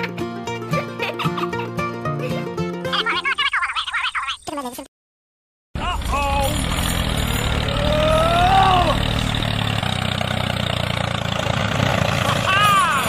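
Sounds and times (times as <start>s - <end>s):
small tractor engine droning: 5.8s - 13.0s
rising and falling tone: 6.2s - 9.9s.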